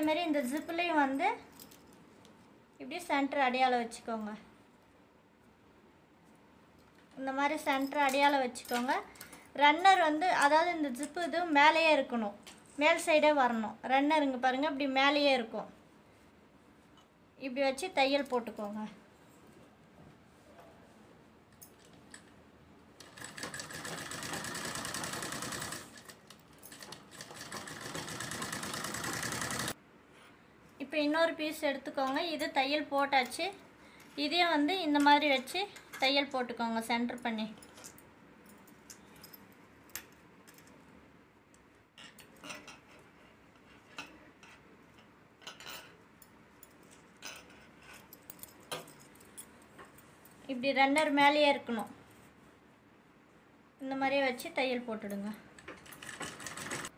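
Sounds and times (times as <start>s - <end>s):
sewing machine stitching: 23.0s - 29.8s, 55.8s - 56.9s.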